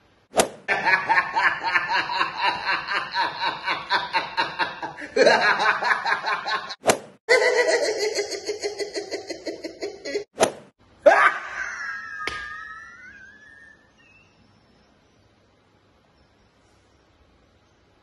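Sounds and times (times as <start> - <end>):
person laughing: 0.7 - 10.3, 11.0 - 13.8.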